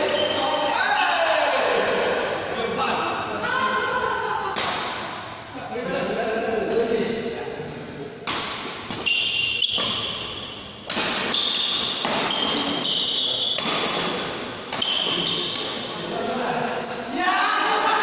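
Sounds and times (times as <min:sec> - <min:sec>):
rackets hitting shuttlecock: 0:04.5 - 0:05.4, 0:08.2 - 0:16.0
shoes squeaking on court: 0:08.9 - 0:15.9, 0:16.7 - 0:17.1.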